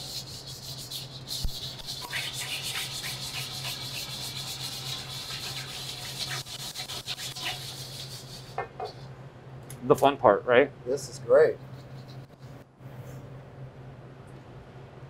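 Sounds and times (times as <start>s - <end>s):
whisk scraping metal bowl: 0.0s - 9.0s.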